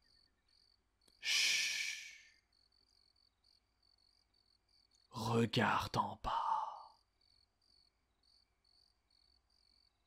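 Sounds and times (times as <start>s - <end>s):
crickets chirping: 0.0s - 10.0s
breathy hiss from a voice: 1.2s - 2.3s.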